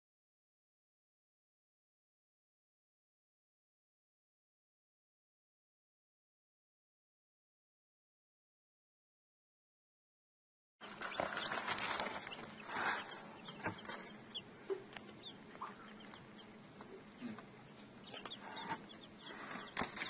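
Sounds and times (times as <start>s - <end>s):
chicks peeping: 10.8s - 20.0s.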